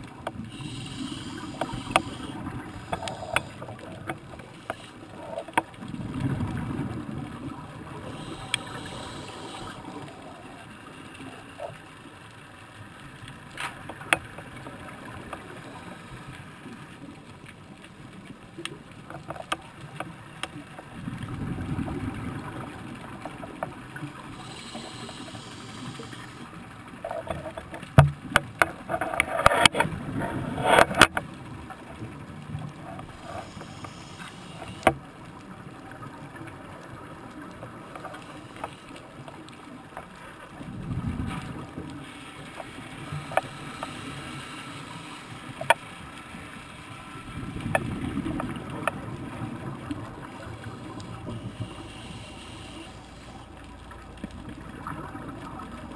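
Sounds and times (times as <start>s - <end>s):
exhaled bubbles rumbling underwater: 0.0s - 55.9s
regulator inhalation hiss: 0.5s - 3.8s, 8.0s - 10.5s, 24.3s - 26.6s, 33.2s - 35.0s, 42.0s - 45.5s, 51.2s - 53.5s
sharp clicks and knocks: 27.0s - 29.9s.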